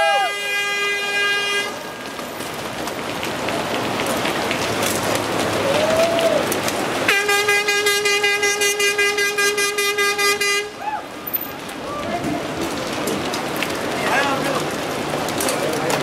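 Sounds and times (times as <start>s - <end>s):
loud horn blast: 0.0s - 2.1s, 7.1s - 10.8s
bicycles whirring past: 1.6s - 7.1s.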